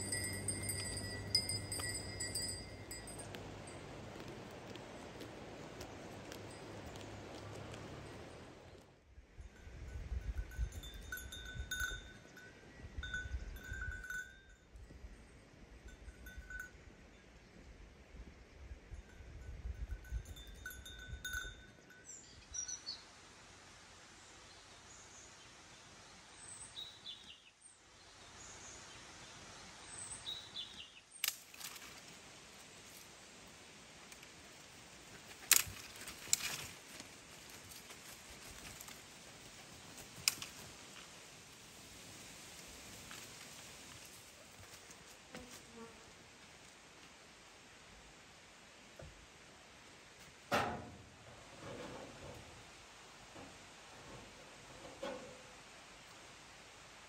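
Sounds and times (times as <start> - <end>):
livestock bell ringing: 0.0 - 4.0, 9.5 - 14.8, 15.9 - 16.9, 19.0 - 22.2
dry twigs snapping: 31.2 - 32.0, 35.3 - 37.1.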